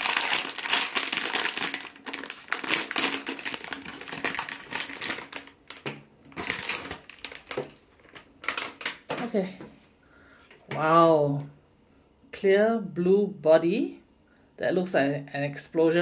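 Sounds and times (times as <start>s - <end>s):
foil bag crinkling: 0.0s - 9.1s.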